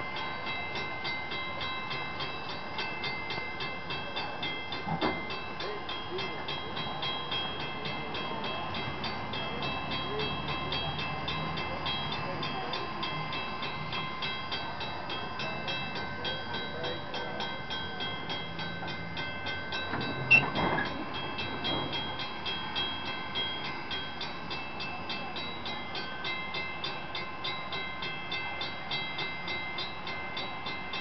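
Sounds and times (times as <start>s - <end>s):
steam locomotive chuffing: 0.0s - 31.0s.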